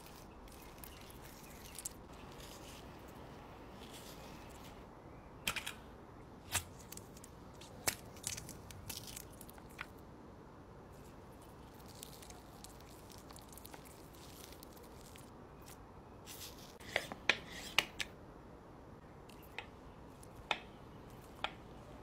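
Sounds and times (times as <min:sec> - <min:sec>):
soft food handling: 0:00.0 - 0:04.9, 0:10.8 - 0:18.2, 0:19.2 - 0:22.0.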